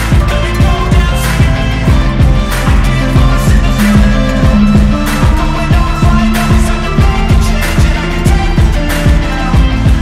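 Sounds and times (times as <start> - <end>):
kick drum: 0.1 - 10.0
sustained pitched notes: 3.4 - 7.7.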